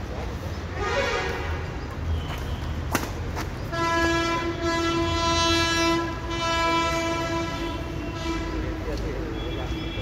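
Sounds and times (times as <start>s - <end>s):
train horn blast: 0.8s - 1.6s, 3.7s - 8.9s.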